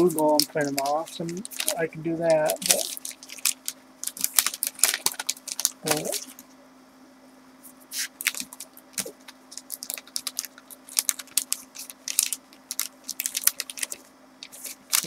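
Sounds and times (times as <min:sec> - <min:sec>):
paper and packaging rustling: 0:00.0 - 0:06.4, 0:07.9 - 0:15.0
faint low hum: 0:00.0 - 0:15.0.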